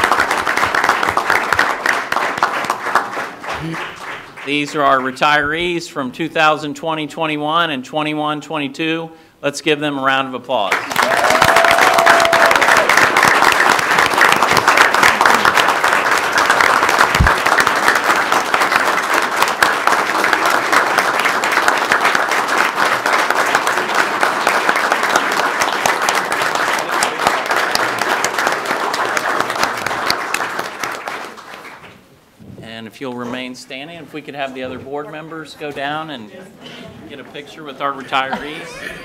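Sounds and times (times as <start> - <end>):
people applauding: 0.0 - 5.3, 10.7 - 32.0.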